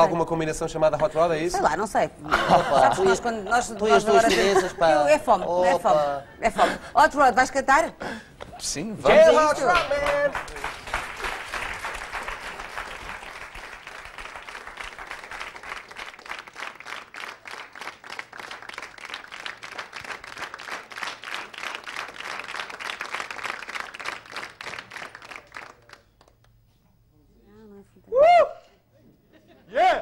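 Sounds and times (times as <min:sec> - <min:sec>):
audience applauding: 0:09.2 - 0:26.5.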